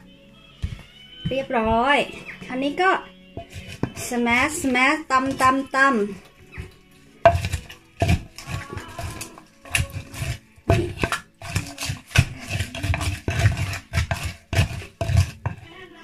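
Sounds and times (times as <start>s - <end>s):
wooden pestle pounding in mortar: 3.4s - 5.6s, 6.6s - 15.6s.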